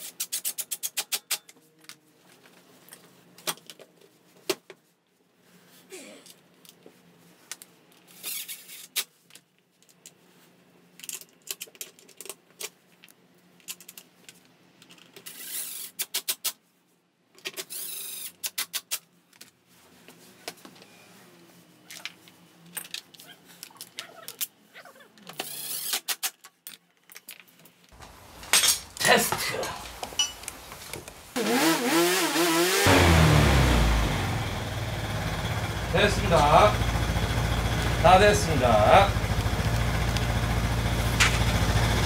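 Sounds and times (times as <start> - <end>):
clinks of bolts and tools: 28.4 - 30.6
cordless power driver running: 31.4 - 42.0.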